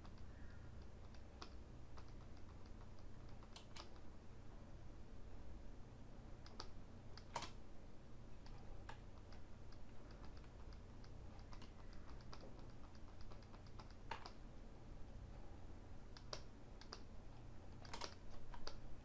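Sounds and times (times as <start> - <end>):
computer keys clicking: 0.0 - 4.1, 6.4 - 7.6, 8.4 - 14.4, 16.0 - 17.1, 17.8 - 18.9
low steady hum: 0.0 - 19.0.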